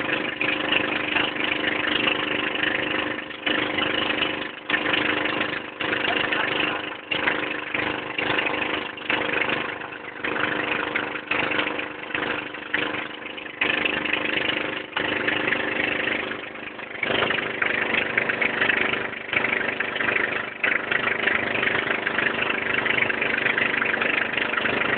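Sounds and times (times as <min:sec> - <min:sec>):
boat engine running: 0:00.0 - 0:24.9.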